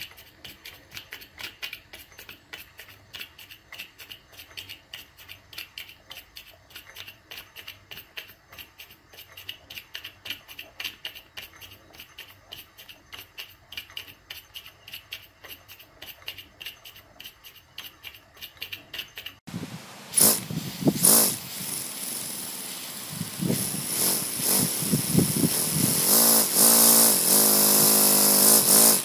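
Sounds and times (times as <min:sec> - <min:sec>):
steam engine chuffing: 0:20.2 - 0:29.0.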